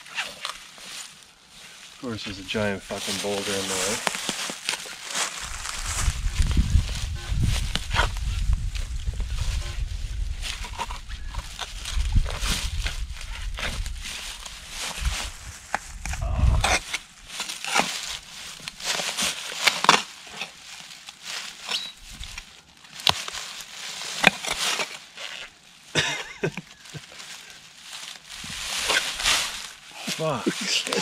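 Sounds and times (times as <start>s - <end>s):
shovel digging in stony ground: 2.9s - 8.6s, 10.4s - 25.5s, 28.4s - 31.0s
low rumble: 5.4s - 16.7s.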